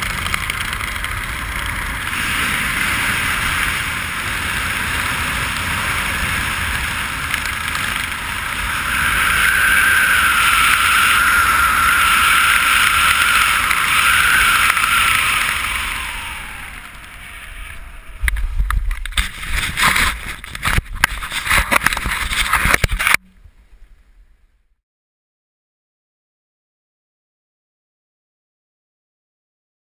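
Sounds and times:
wind rushing over microphone: 0.0s - 23.8s.

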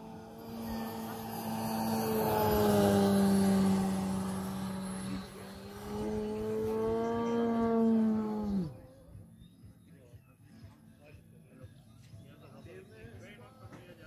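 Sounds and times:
model plane motor droning: 0.0s - 9.1s.

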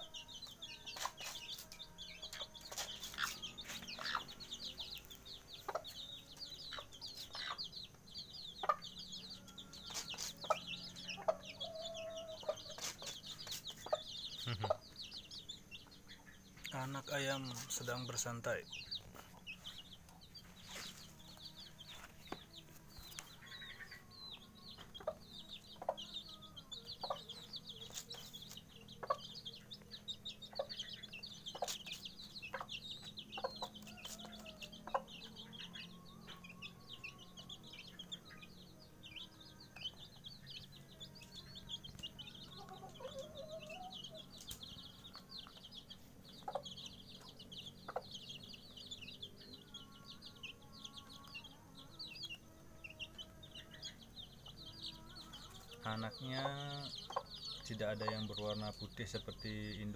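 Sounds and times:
chicks peeping: 0.0s - 59.9s
hen clucking: 2.3s - 6.0s, 6.7s - 7.7s, 9.9s - 15.0s, 42.5s - 44.6s, 55.3s - 59.3s.

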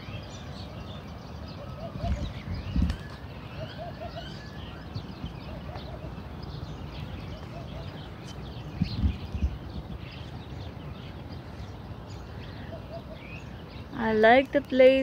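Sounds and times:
lower bird call: 0.0s - 14.1s
small birds chirping: 0.0s - 15.0s
steady low rumble: 4.9s - 15.0s.

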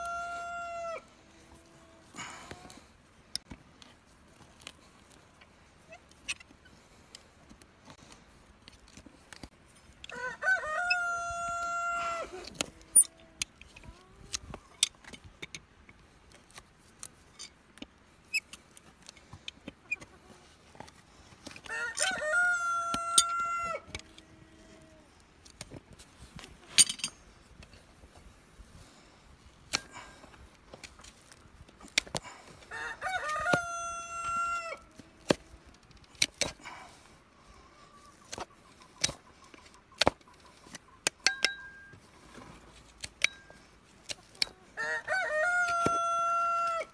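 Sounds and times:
rooster crowing: 0.0s - 1.1s, 10.1s - 12.4s, 21.6s - 24.0s, 32.7s - 34.9s, 44.8s - 46.9s
hoof trimming tool clicks and snaps: 29.7s - 29.9s.

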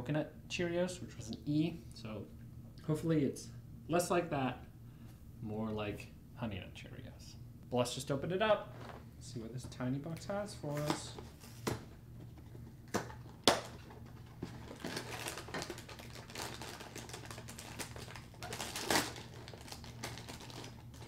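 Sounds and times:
plastic tearing: 12.9s - 21.0s
plastic bag crinkling: 13.1s - 21.0s.

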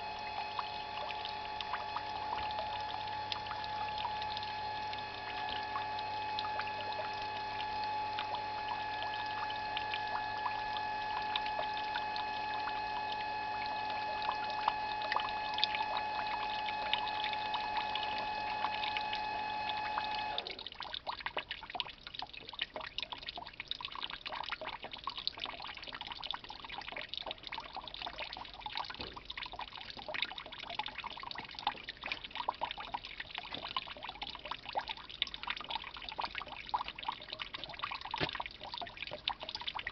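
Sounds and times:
juice trickling into tub: 0.0s - 39.9s
liquid dripping: 0.0s - 39.9s
pump humming: 0.0s - 39.9s.

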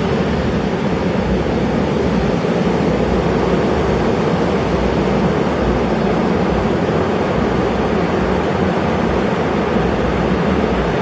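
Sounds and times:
surf roaring: 0.0s - 11.0s.

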